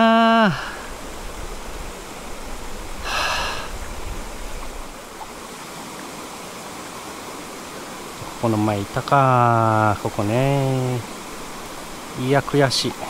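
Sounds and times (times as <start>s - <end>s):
stream rushing over rocks: 0.0s - 13.0s
breathy exhale: 0.5s - 1.0s, 3.0s - 3.8s.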